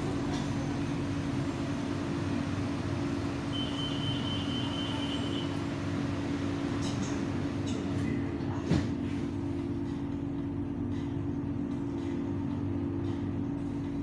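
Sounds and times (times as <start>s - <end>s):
train hum and rumble: 0.0s - 14.0s.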